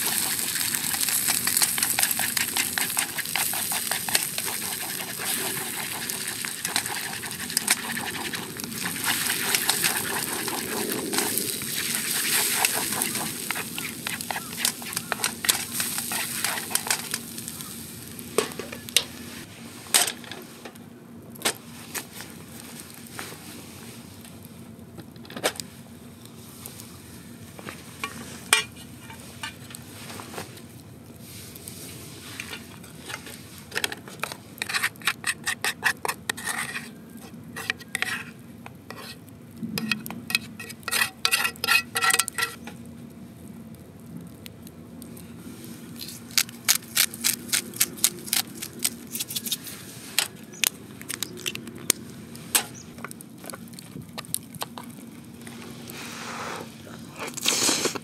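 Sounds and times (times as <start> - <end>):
metal utensil scraping pan: 37.6 - 39.2, 39.8 - 42.7.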